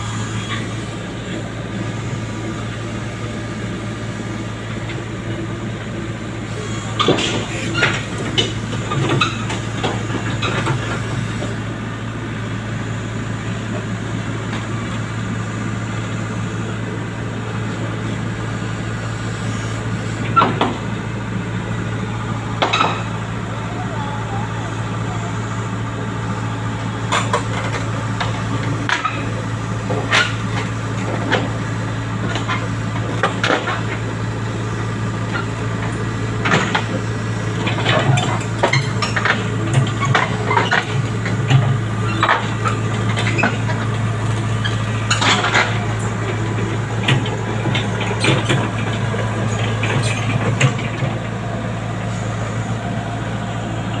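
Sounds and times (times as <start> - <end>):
diesel engine running: 0.0 - 54.0
steel tracks clanking: 6.4 - 11.7, 17.6 - 54.0.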